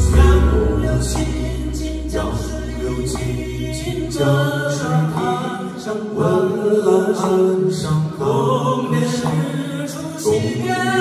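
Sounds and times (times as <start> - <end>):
low bass note: 0.0 - 4.0
voices singing in harmony: 0.0 - 11.0.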